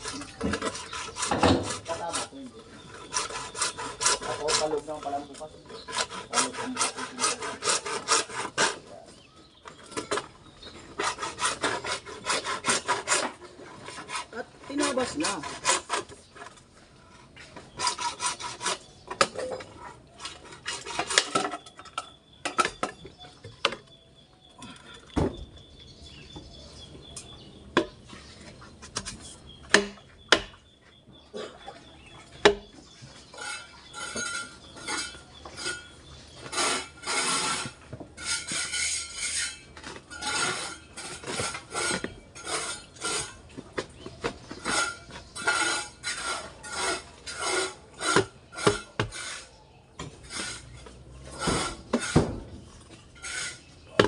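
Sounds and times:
rhythmic rasping strokes: 0:00.0 - 0:08.8.

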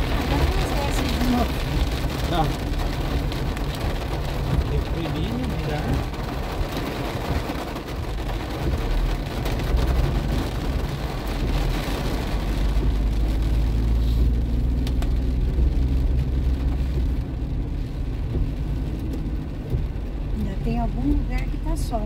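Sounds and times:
engine and road rumble: 0:00.0 - 0:22.0
tyre hiss on wet road: 0:13.7 - 0:14.8.

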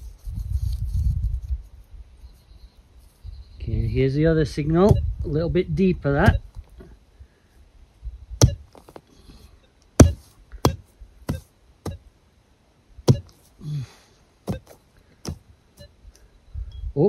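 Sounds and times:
loose dirt scraping: 0:00.0 - 0:05.4, 0:08.4 - 0:12.0
digging tool striking ground: 0:04.8 - 0:05.1, 0:08.4 - 0:09.1, 0:10.0 - 0:12.1, 0:13.1 - 0:13.6, 0:14.5 - 0:15.5.

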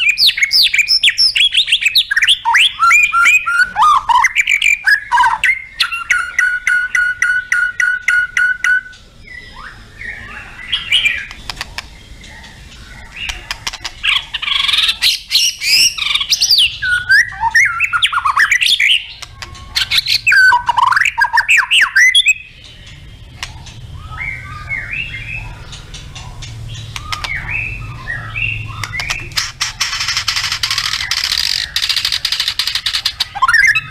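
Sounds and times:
bird singing whistled phrases: 0:00.0 - 0:11.4, 0:14.1 - 0:22.6, 0:30.4 - 0:33.9.

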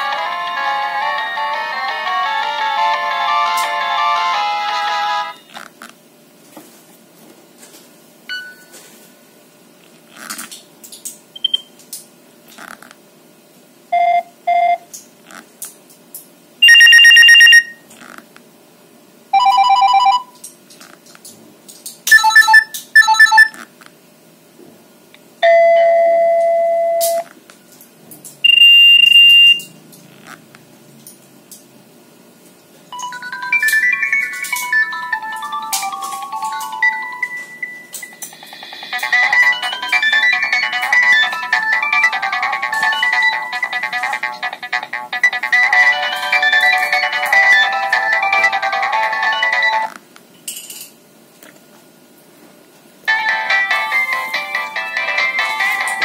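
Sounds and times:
simple phone melody: 0:00.0 - 0:05.5, 0:22.1 - 0:23.5, 0:32.9 - 0:49.9, 0:53.1 - 0:56.0
phone ringtone and alert previews: 0:22.1 - 0:23.5, 0:33.0 - 0:49.9.

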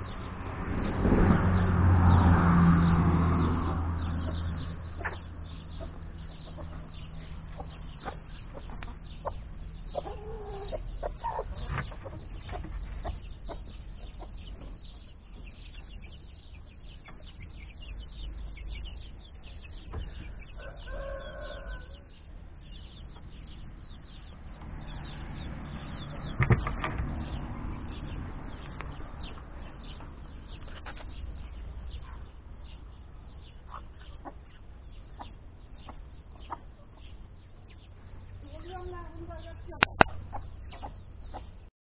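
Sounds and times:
chickens clucking: 0:03.6 - 0:41.7.

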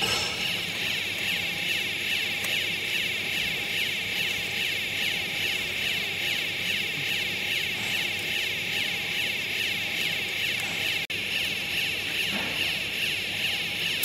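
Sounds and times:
machinery whirring: 0:00.0 - 0:14.0.

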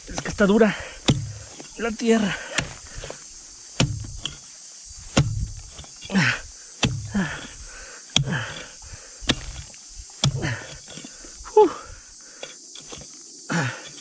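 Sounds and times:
metal tool striking hard ground: 0:00.0 - 0:03.2, 0:03.8 - 0:04.5, 0:05.1 - 0:06.2, 0:06.8 - 0:11.1
person grunting with effort: 0:06.1 - 0:08.8, 0:10.3 - 0:10.8, 0:13.5 - 0:14.0.

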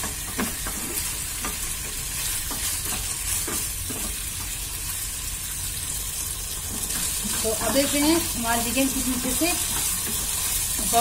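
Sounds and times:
wooden spatula scraping: 0:00.0 - 0:04.2
chicken wings sizzling in a pan: 0:00.0 - 0:11.0.

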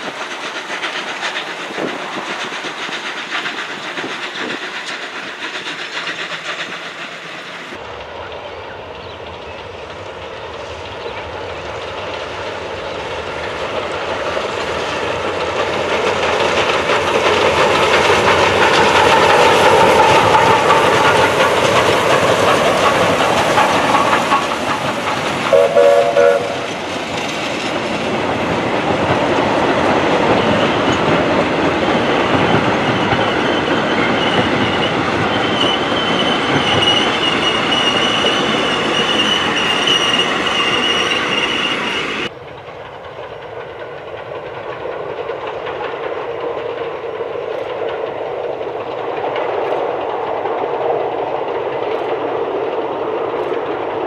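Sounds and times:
steam locomotive passing: 0:00.0 - 0:54.0
wheels clacking over rail joints: 0:00.0 - 0:54.0
train whistle blast: 0:25.5 - 0:26.7.

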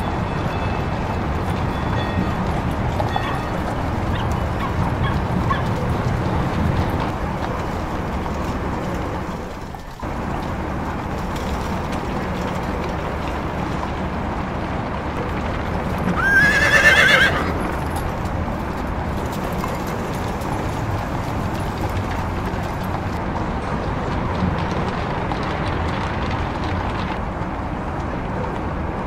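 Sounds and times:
horse hooves clopping: 0:00.0 - 0:29.0
street noise: 0:00.0 - 0:29.0
horse whinnying: 0:16.2 - 0:17.7.

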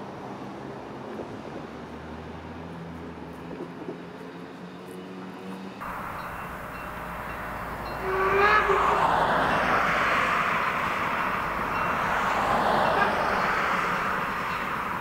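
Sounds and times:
steady rushing noise: 0:05.8 - 0:15.0
steam locomotive whistle: 0:05.8 - 0:15.0.

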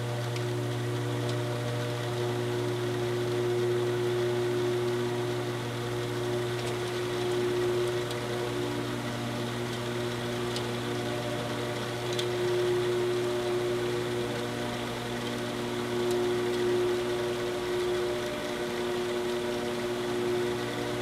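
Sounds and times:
saw motor humming: 0:00.0 - 0:21.0.

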